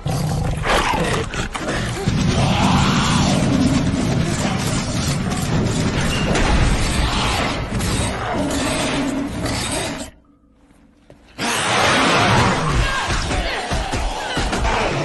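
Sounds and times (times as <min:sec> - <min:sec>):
crashing and shattering effects: 0:02.1 - 0:08.4.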